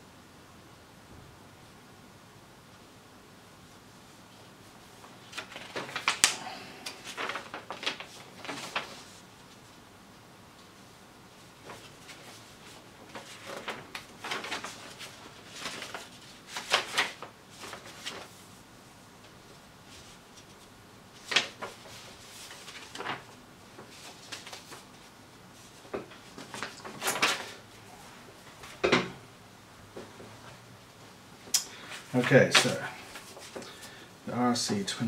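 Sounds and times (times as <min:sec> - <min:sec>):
paper sheets rustling: 0:04.2 - 0:09.8, 0:10.6 - 0:28.9, 0:31.7 - 0:34.0.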